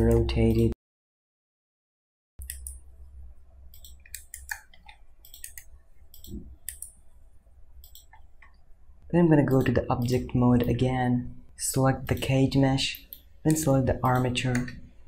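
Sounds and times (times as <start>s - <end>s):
computer mouse clicks: 2.4s - 2.8s, 3.7s - 7.0s, 7.8s - 8.6s, 12.0s - 14.9s
keyboard keys clicking: 3.7s - 6.9s.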